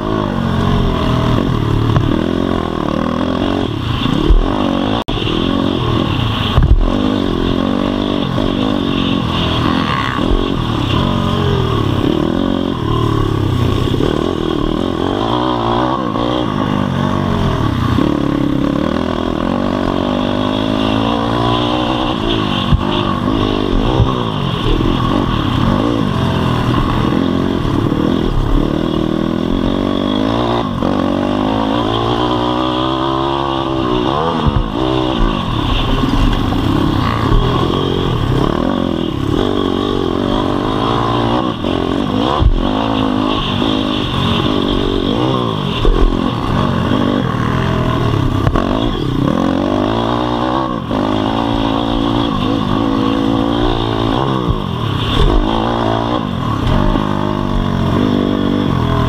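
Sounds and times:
motorbike engine revving: 0.0 - 59.0
sharp thumps from track: 1.4 - 2.4, 6.4 - 7.0, 54.4 - 57.6.

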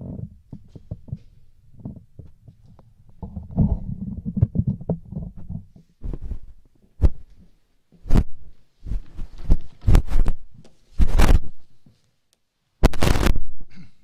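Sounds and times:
rustling: 0.1 - 12.2.

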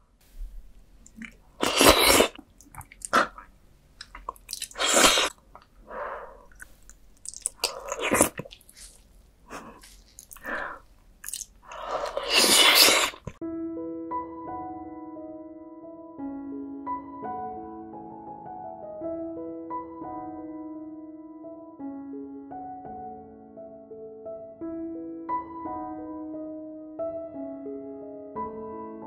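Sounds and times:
wet chewing and mouth noises: 1.0 - 13.4
piano music: 13.4 - 29.0.

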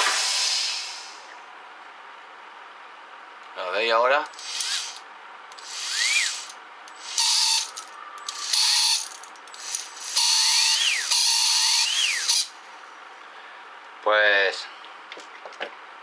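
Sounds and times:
electric motor whine spinning up: 4.3 - 12.5.

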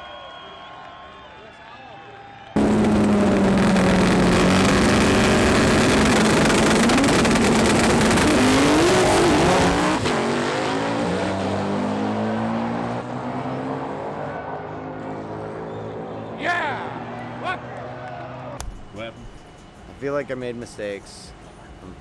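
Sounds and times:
drag race cars accelerating: 2.6 - 18.6.

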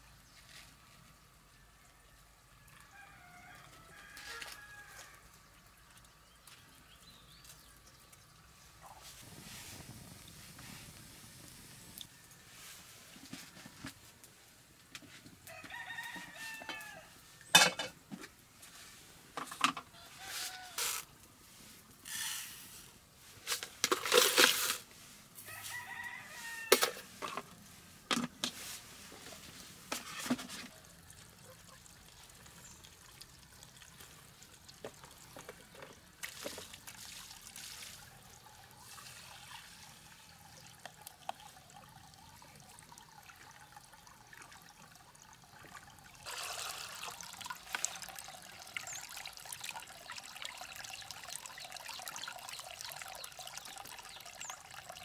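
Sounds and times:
rooster crowing: 2.6 - 5.3, 15.5 - 17.2, 20.0 - 21.0, 25.4 - 27.1
water splashing: 30.0 - 55.0.

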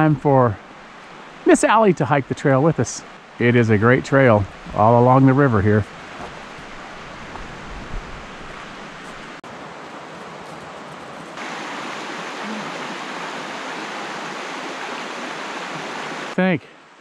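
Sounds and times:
river water rushing over rocks: 5.9 - 17.0.

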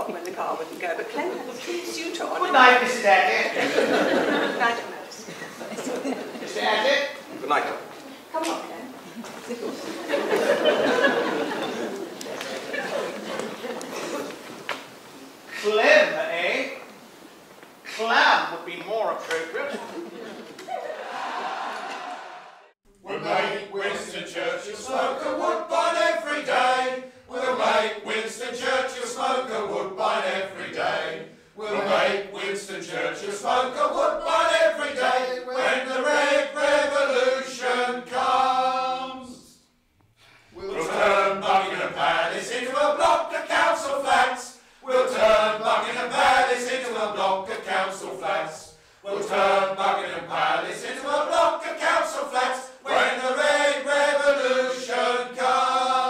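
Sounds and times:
choir singing: 1.4 - 6.6, 9.7 - 14.4, 20.8 - 39.6, 40.5 - 56.0.

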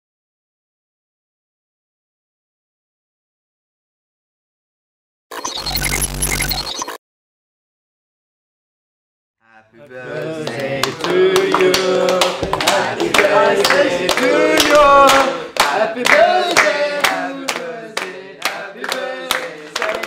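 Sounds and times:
group singing birthday song: 9.4 - 20.0
people clapping in time: 9.8 - 20.0.

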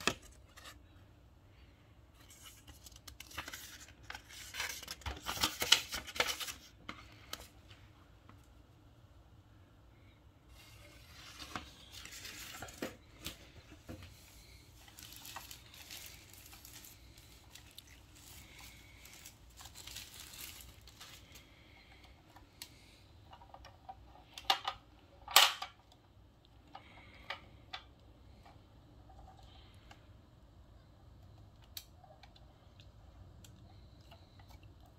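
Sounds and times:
paper wrapping crinkling: 2.2 - 7.4, 11.0 - 21.7.

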